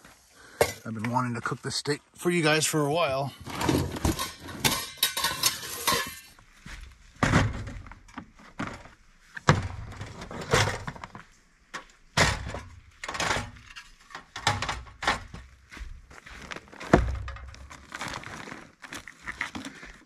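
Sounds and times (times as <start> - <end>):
metal pots and lids clanking: 3.4 - 6.4
gas stove set on table: 4.0 - 6.4.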